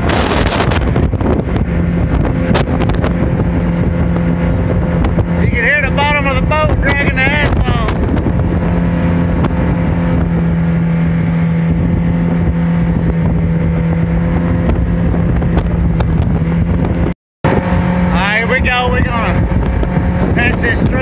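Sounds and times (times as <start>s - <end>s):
outboard motor running: 0.0s - 21.0s
wind rushing over microphone: 0.0s - 21.0s.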